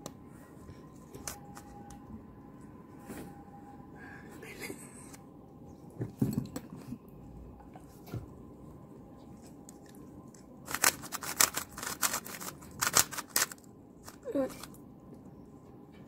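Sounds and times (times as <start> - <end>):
puzzle cube clacking: 10.7 - 14.8.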